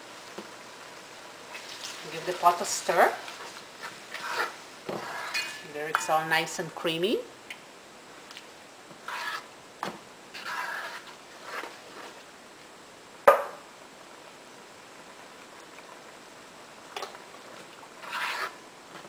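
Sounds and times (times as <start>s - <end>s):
spoon stirring in a pot: 1.5s - 6.3s, 8.9s - 9.5s, 10.3s - 12.3s, 16.9s - 18.6s.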